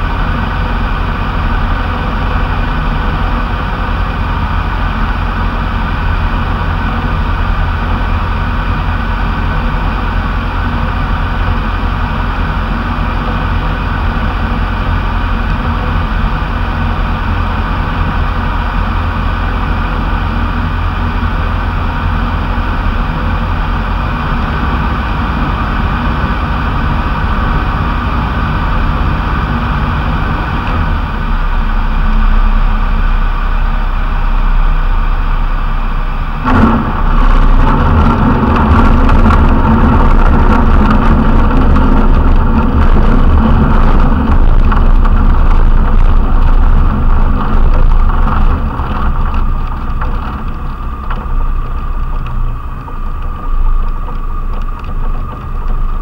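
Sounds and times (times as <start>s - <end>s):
aircraft engine throttled back: 0.0s - 56.0s
wheels rumbling and rattling on grass: 0.0s - 56.0s
wind rushing: 36.1s - 56.0s.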